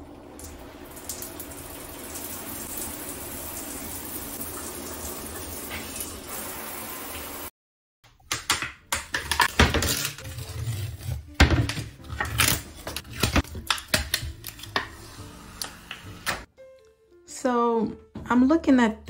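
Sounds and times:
tape and paper tearing and peeling: 9.8 - 11.4.

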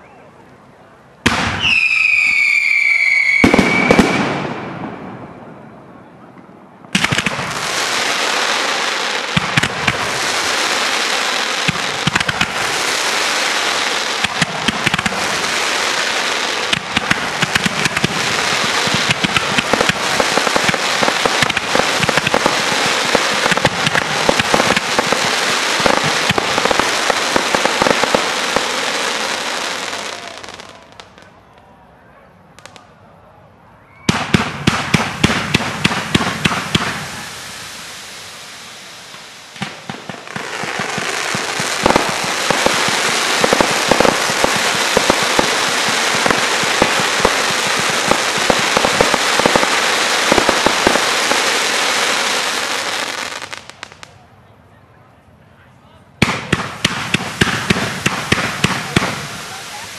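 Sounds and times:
fireworks crackling and popping: 1.2 - 5.4, 6.3 - 31.3, 34.1 - 54.2, 56.2 - 59.9
sharp firework reports: 1.2 - 31.2, 34.1 - 53.3, 56.2 - 59.9
falling firework whistle: 1.3 - 5.5, 33.8 - 34.3.

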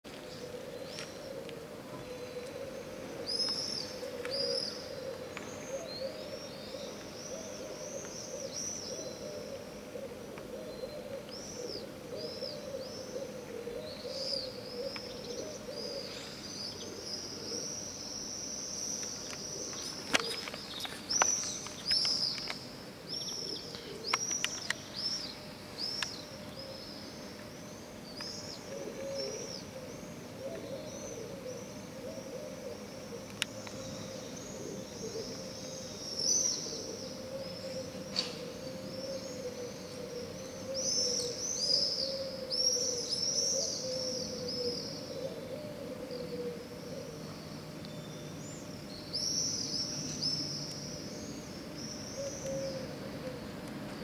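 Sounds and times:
birds chirping: 0.1 - 54.0
wavering hooting bird call: 0.2 - 20.4, 28.4 - 47.5, 48.1 - 53.6.

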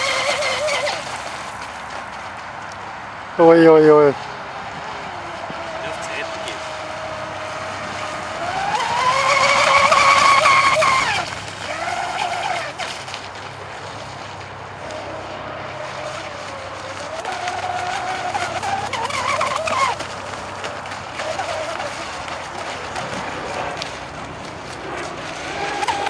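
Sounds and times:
model boat motor revving: 0.0 - 1.5, 3.4 - 26.0.

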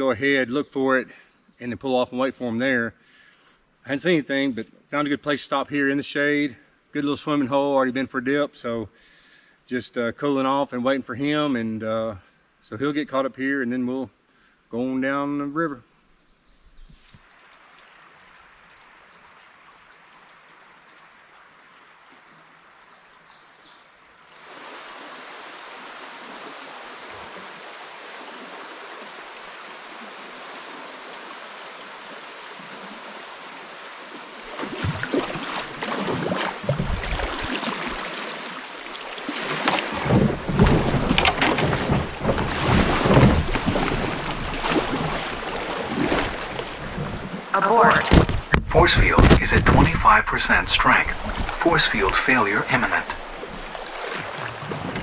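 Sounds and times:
high insect drone: 0.0 - 47.9
river water rushing: 24.3 - 55.0
wind buffeting microphone: 36.0 - 37.5, 51.1 - 51.6.

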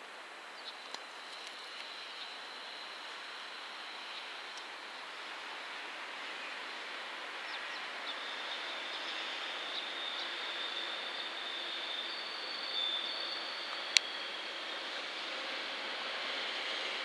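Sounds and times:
train wheels on rail: 0.0 - 17.0
thin high wheel squeal: 8.2 - 17.0.

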